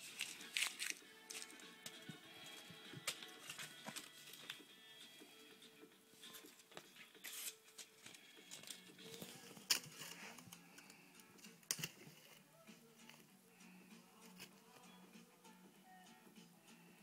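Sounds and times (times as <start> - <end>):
faint background music: 0.0 - 17.0.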